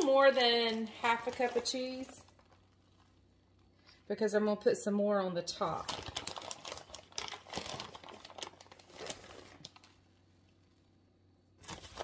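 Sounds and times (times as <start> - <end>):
plastic bag rustling: 0.0 - 3.7, 5.6 - 10.1, 11.6 - 12.0.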